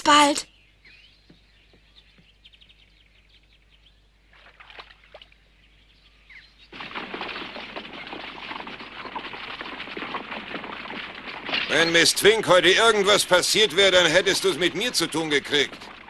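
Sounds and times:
faint swamp ambience: 0.0 - 16.0
bird chirps: 0.4 - 4.4, 5.2 - 8.4
clatter of horses' hooves: 6.6 - 16.0
horse-drawn wagon: 6.6 - 16.0.

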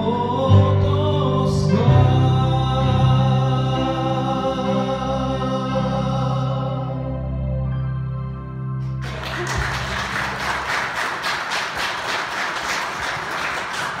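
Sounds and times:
audience applause: 9.0 - 14.0.

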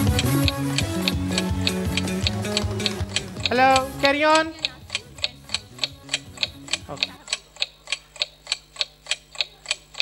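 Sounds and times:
clock ticking: 0.0 - 10.0.

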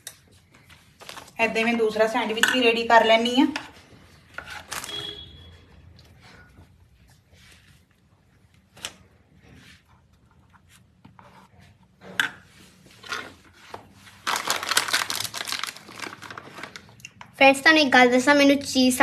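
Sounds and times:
plastic bag crinkling: 14.1 - 17.1.

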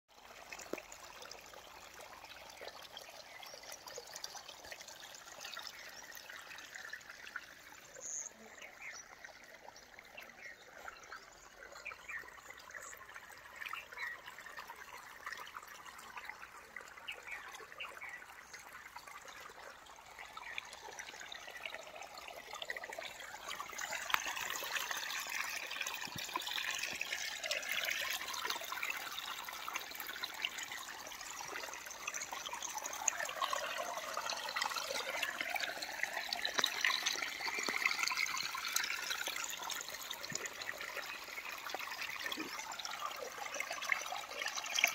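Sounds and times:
water trickling through furrows: 0.1 - 44.9.

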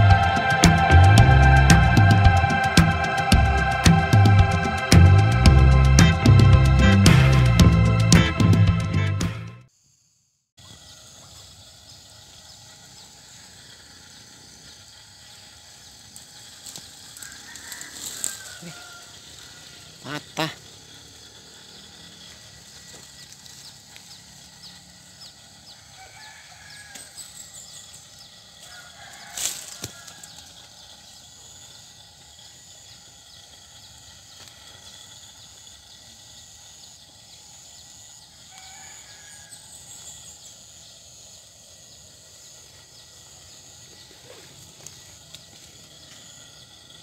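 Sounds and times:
high insect hum: 0.0 - 47.0
faint fowl clucking: 17.2 - 20.6.

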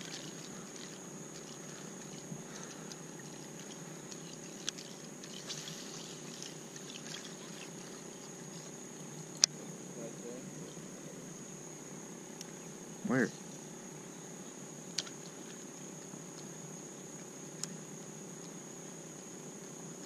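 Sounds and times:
water lapping against kayak hull: 0.0 - 8.8
faint ticks: 0.0 - 9.6, 14.9 - 16.5, 17.1 - 19.8
steady high-pitched whine: 0.0 - 20.0.

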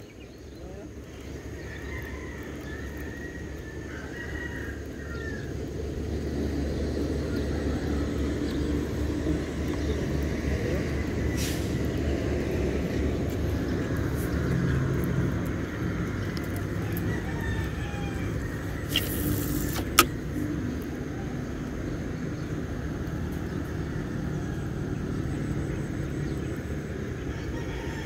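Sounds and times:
road traffic rumble: 0.0 - 28.0
rooster crowing: 1.6 - 5.6, 16.7 - 19.8, 27.2 - 28.0.

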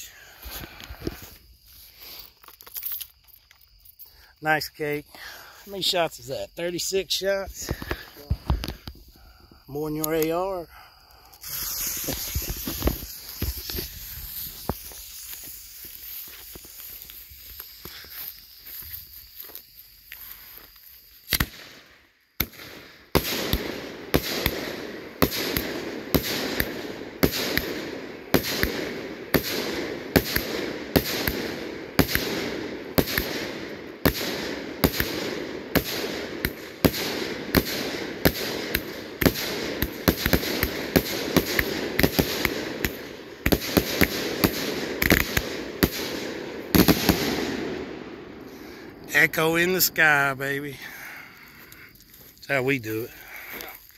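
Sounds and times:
fireworks hiss: 0.0 - 3.0, 3.9 - 53.9
fireworks bangs: 5.2 - 10.7, 11.3 - 18.1, 21.3 - 51.2.

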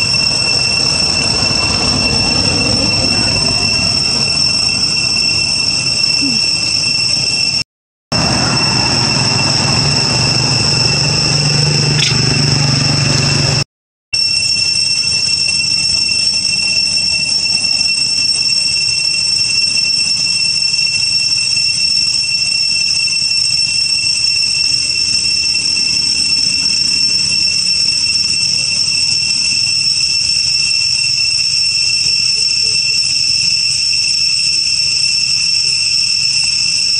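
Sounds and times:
insects droning high-pitched: 0.0 - 7.6, 8.2 - 13.6, 14.2 - 36.9.

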